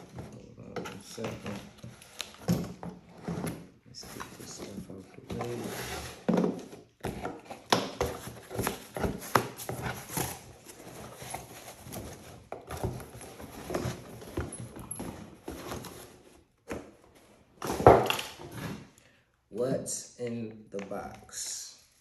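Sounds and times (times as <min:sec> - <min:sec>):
packaging knocks and thuds: 0:17.6 - 0:18.8.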